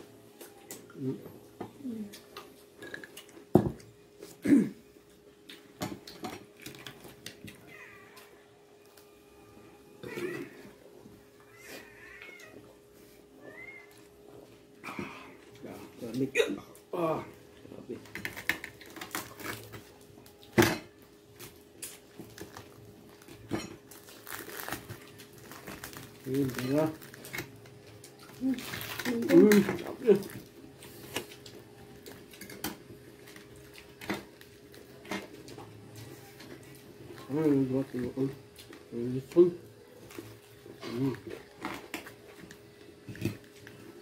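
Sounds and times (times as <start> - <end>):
dishes and cutlery clinking: 32.2 - 32.9.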